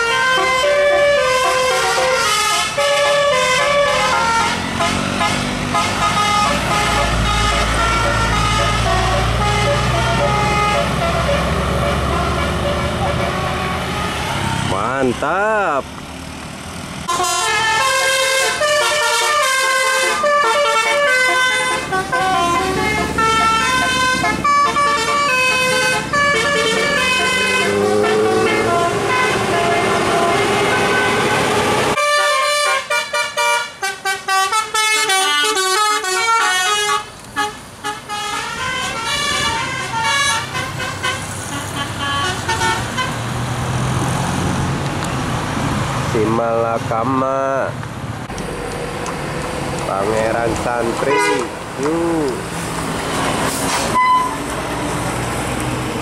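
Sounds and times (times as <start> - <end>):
musical air horn tunes: 0.0 - 14.4, 17.1 - 43.1, 51.0 - 51.5, 53.9 - 54.4.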